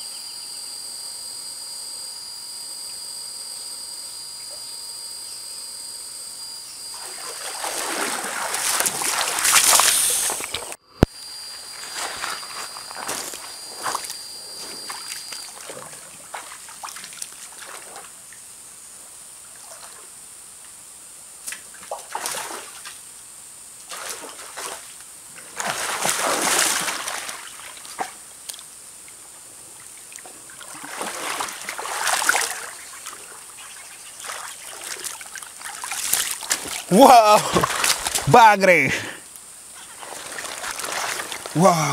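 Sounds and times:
water splashing: 6.9 - 10.8, 23.9 - 28.6, 29.8 - 38.4, 39.8 - 41.9.

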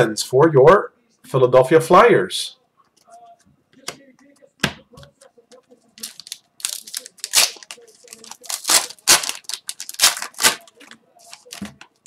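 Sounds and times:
foil wrapper tearing and crinkling: 6.0 - 11.6.

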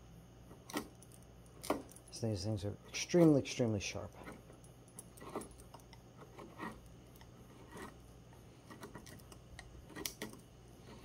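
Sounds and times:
gouge scraping tree bark: 5.1 - 5.6, 6.2 - 8.0, 8.6 - 11.0.

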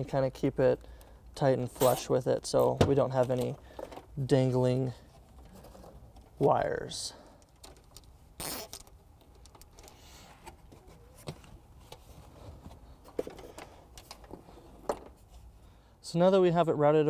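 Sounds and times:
zip tie clicks: 8.4 - 8.9
quiet rustling: 9.3 - 15.6.

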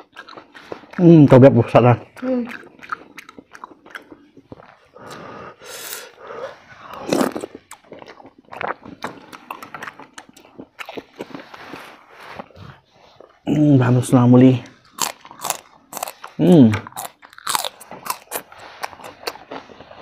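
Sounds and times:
chewing and lip smacking: 0.0 - 13.4, 14.6 - 20.0
soup slurping: 2.5 - 10.4.

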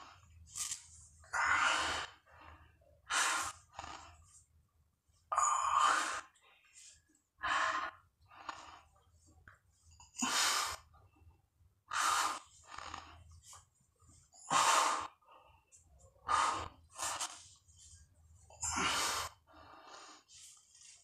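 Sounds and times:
man breathing heavily: 18.6 - 21.0.

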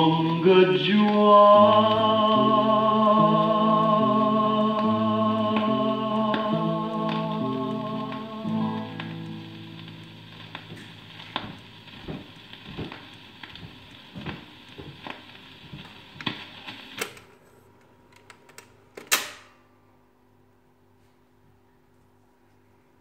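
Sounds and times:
stylus clicking in run-out groove: 0.0 - 16.5
record surface hiss: 0.0 - 23.0.

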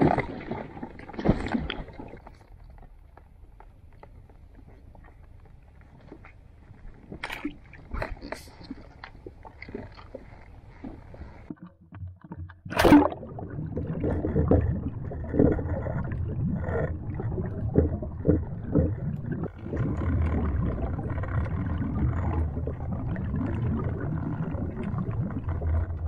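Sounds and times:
underwater gurgling rumble: 0.0 - 26.0
dull knocks underwater: 11.5 - 23.8
camera splashing into water: 12.7 - 13.3.

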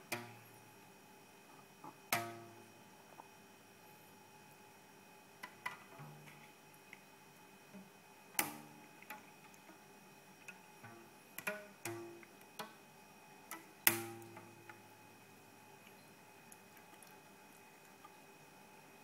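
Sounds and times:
rubber band twanging: 13.9 - 14.5.

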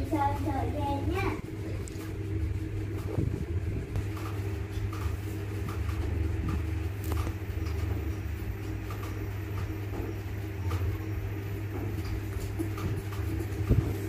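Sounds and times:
motor humming: 0.0 - 14.0.

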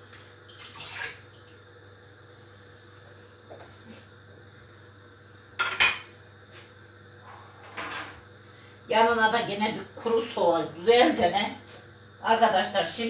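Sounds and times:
dishes clattering: 5.6 - 6.1.

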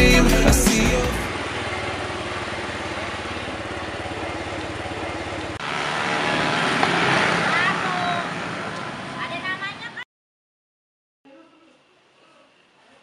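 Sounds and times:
music: 0.0 - 1.3
scooter engine running: 0.0 - 10.0
motorcycles passing: 0.3 - 10.0
street traffic: 0.7 - 10.0.

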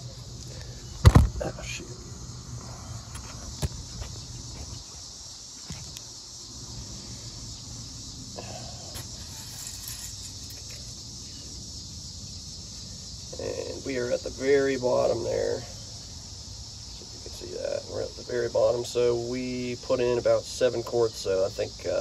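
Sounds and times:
steady high-pitched hiss: 0.0 - 22.0.

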